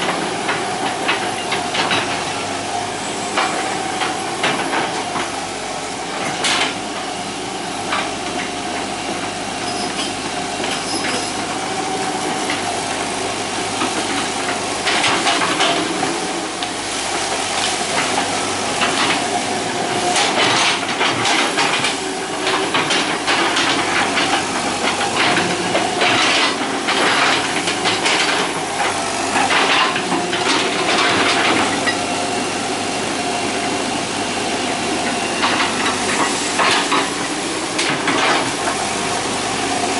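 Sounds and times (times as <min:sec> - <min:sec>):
excavator diesel engine whining: 0:00.0 - 0:39.9.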